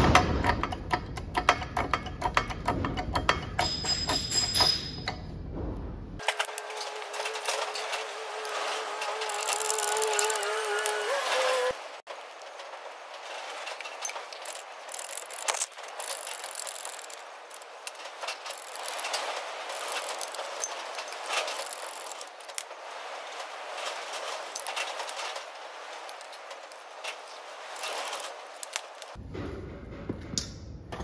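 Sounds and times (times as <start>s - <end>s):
metal clinks and rattles: 0.4s - 5.3s, 13.2s - 22.8s.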